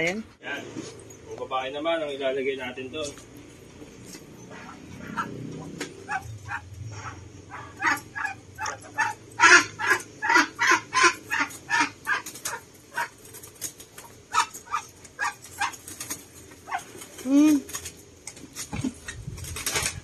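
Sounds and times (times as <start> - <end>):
dog barking rapidly: 4.5 - 13.2, 14.3 - 15.8, 16.6 - 17.0.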